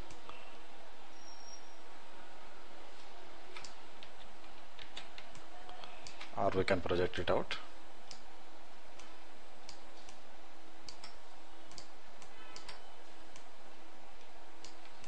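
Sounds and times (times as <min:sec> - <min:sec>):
faint steady hum: 0:00.0 - 0:15.0
computer mouse clicks: 0:03.5 - 0:06.4, 0:10.8 - 0:13.5, 0:14.2 - 0:15.0.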